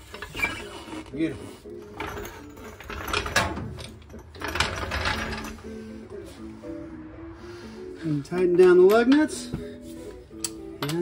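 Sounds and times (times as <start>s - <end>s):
floor jack rattling and clanking: 1.9s - 5.7s.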